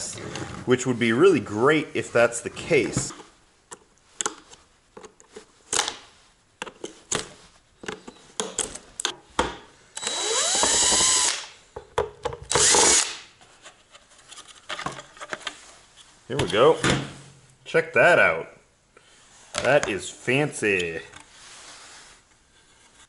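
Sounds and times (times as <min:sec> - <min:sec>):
clicks and knocks of handling: 0:03.0 - 0:06.0, 0:06.6 - 0:09.6
cordless drill spinning up: 0:10.0 - 0:11.5, 0:12.5 - 0:13.1.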